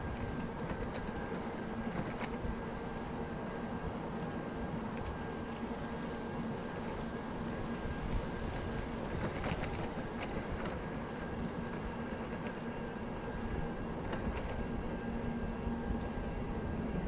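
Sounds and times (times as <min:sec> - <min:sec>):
light clicks and crackles: 0:00.0 - 0:03.2, 0:07.9 - 0:16.4
constant low hum: 0:00.0 - 0:17.0
wind rumble on microphone: 0:00.0 - 0:17.0.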